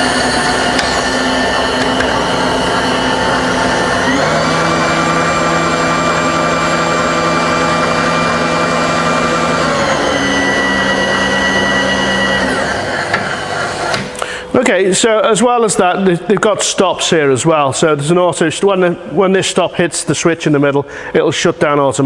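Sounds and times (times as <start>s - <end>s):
milling machine motors whining: 0.0s - 14.2s.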